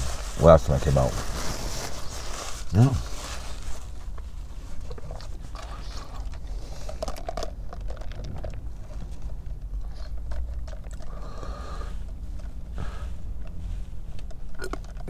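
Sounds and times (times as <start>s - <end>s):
paper wrapper crinkling: 0.0s - 9.3s
low steady rumble: 0.0s - 15.0s
mouth noises of eating: 4.8s - 15.0s.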